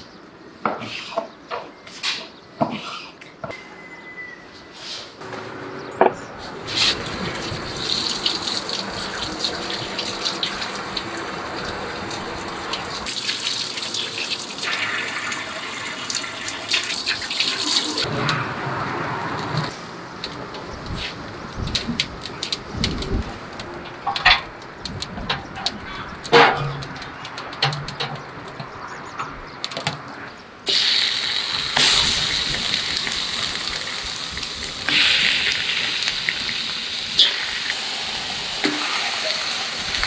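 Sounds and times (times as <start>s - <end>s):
water running and splashing: 6.6s - 18.1s, 30.7s - 40.0s
sharp clicks and knocks: 19.3s - 30.2s.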